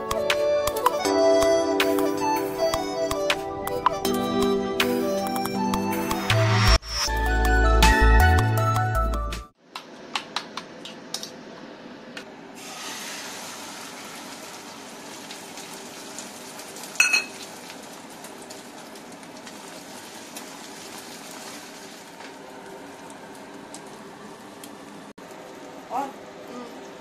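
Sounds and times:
omelette sizzling in a frying pan: 12.6s - 24.0s
spoon clinking against steel bowl: 17.0s - 17.3s.

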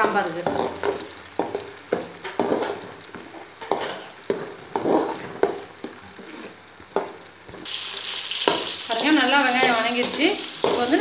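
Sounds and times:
onions sizzling in oil: 0.0s - 11.0s
metal ladle scraping pan: 3.7s - 6.6s.

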